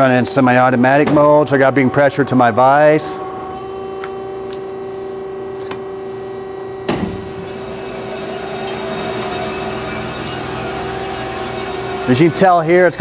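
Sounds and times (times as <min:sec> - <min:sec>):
band saw humming: 0:06.1 - 0:13.0.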